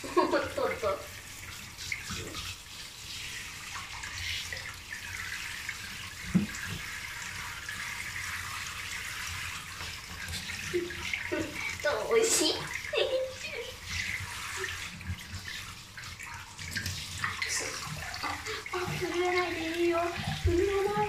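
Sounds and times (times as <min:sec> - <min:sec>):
water splashing: 0:00.0 - 0:21.0
shower spray hissing: 0:10.7 - 0:15.0.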